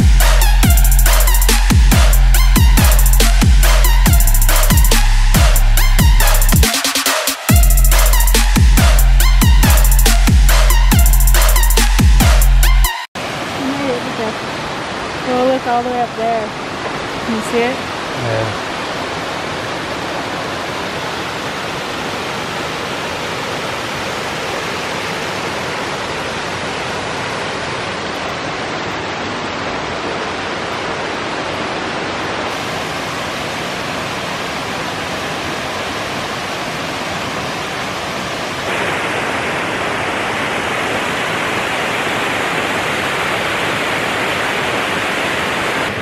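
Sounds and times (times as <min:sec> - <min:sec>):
waterfall rushing over rocks: 0:13.2 - 0:46.0.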